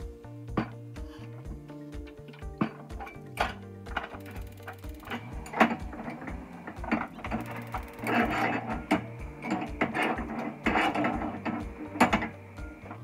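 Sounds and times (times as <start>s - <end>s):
metal utensil scraping frying pan: 2.6s - 12.4s.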